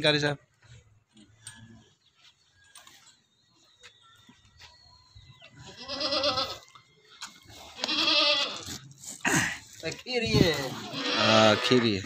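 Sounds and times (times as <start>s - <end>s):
goat bleating: 5.6s - 6.6s, 7.6s - 8.9s, 10.6s - 12.0s.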